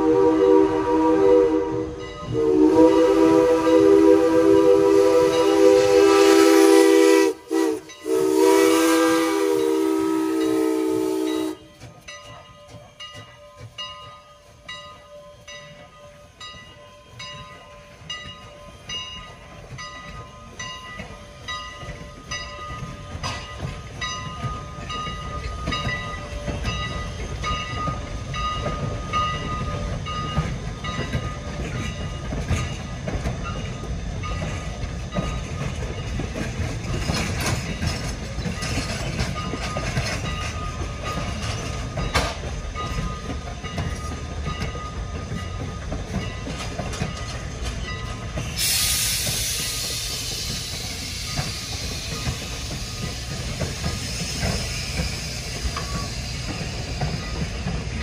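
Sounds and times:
steam locomotive whistle: 0:00.0 - 0:11.8, 0:48.4 - 0:56.8
low rumble of train: 0:00.0 - 0:58.0
locomotive bell ringing: 0:01.8 - 0:06.1, 0:07.8 - 0:08.6, 0:09.4 - 0:48.6, 0:49.5 - 0:58.0.

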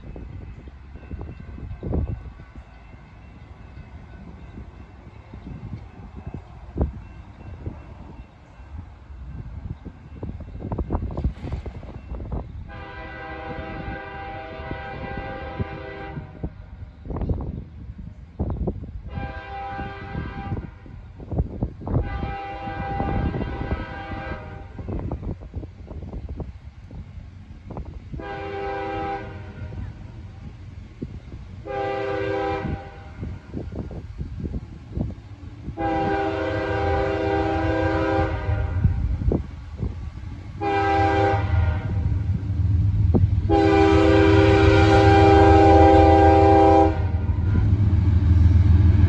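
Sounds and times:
wind buffeting microphone: 0:00.0 - 0:49.0
distant locomotive air horn: 0:12.7 - 0:16.5, 0:19.1 - 0:21.0, 0:21.9 - 0:25.0, 0:28.2 - 0:30.0, 0:31.6 - 0:33.6, 0:35.6 - 0:39.1, 0:40.6 - 0:42.4, 0:43.4 - 0:49.0.

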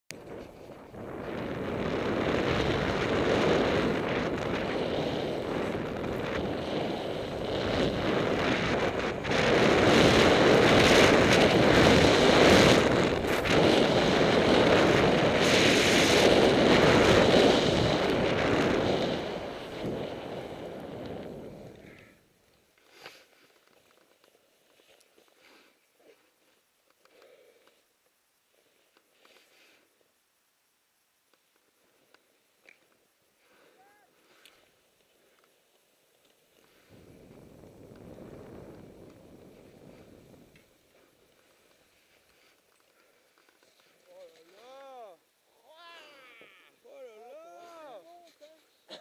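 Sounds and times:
wind rushing over microphone: 0:00.1 - 0:22.0, 0:36.8 - 0:40.9.

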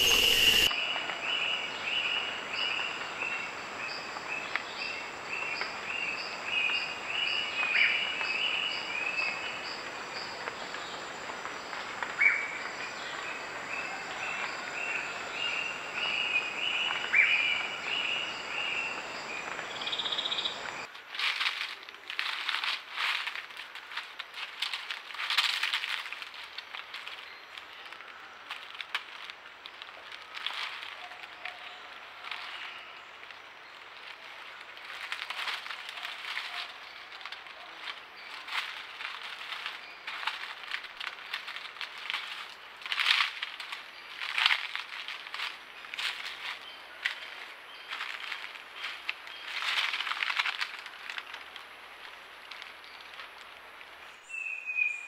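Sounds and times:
rapid animal chirps: 0:00.0 - 0:00.7
sharp crackles and clicks: 0:20.7 - 0:54.0
leaf litter rustling: 0:20.8 - 0:54.5.

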